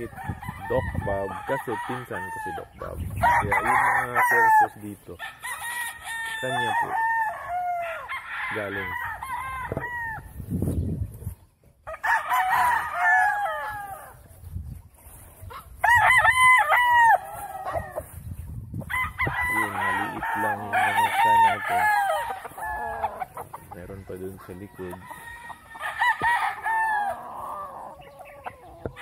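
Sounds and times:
roosters crowing: 0:00.0 - 0:10.8, 0:11.7 - 0:29.0.

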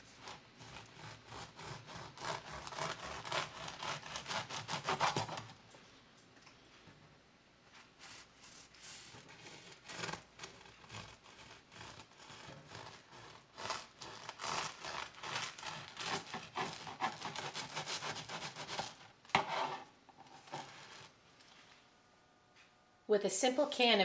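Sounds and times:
bread knife sawing through bread: 0:00.0 - 0:05.5, 0:08.0 - 0:19.9.

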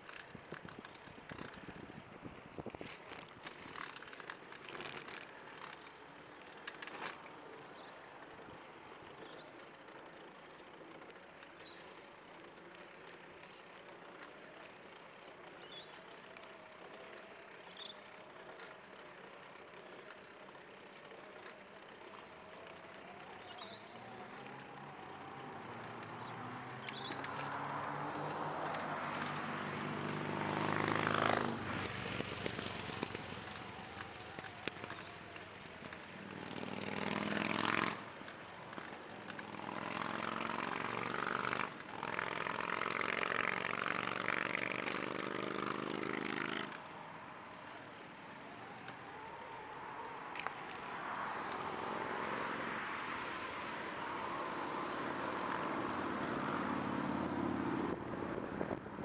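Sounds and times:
trike tyres rolling on concrete: 0:00.0 - 0:59.0
vehicle engine passing: 0:22.8 - 0:35.2, 0:36.2 - 0:38.2, 0:39.2 - 0:46.8.

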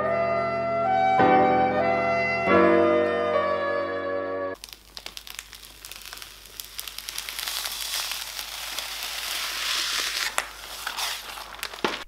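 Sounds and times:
plastic film being peeled off: 0:04.6 - 0:12.0.

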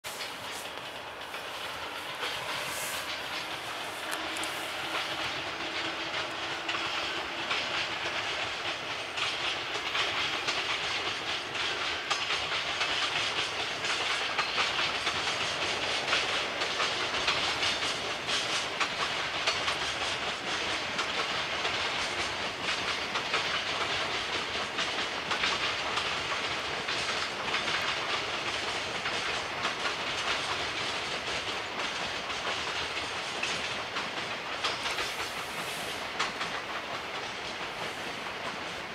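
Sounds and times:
freight train rolling past: 0:00.0 - 0:38.9
rushing hiss: 0:00.0 - 0:38.9
wheels clicking over rail joints: 0:00.1 - 0:38.9.

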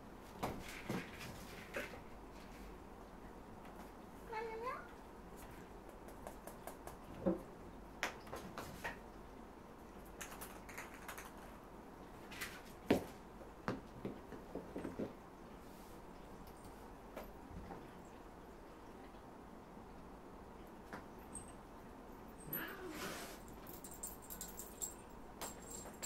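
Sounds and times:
cats tapping and knocking: 0:12.9 - 0:15.2.

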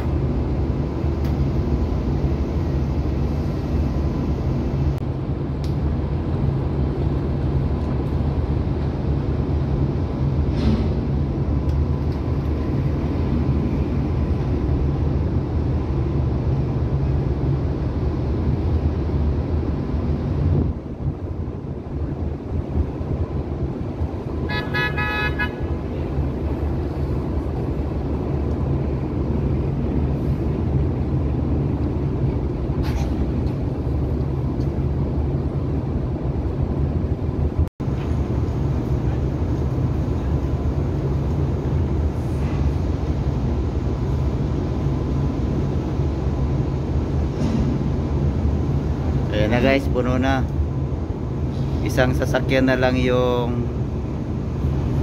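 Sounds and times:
engine rumbling: 0:00.0 - 0:55.0
vehicle horn toot: 0:24.5 - 0:25.8.

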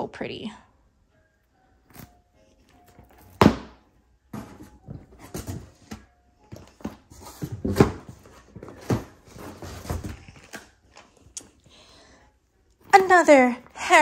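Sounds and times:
cardboard boxes knocking and rustling: 0:03.0 - 0:10.6.

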